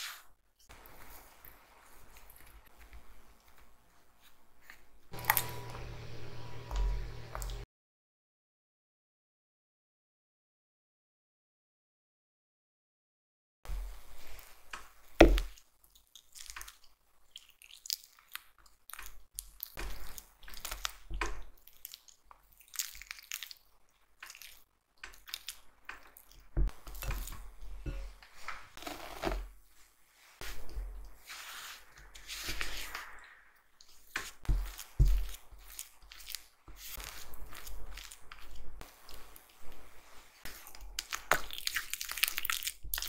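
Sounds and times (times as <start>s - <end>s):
spatula squishing butter in glass bowl: 15.5s - 29.5s, 33.8s - 43.0s.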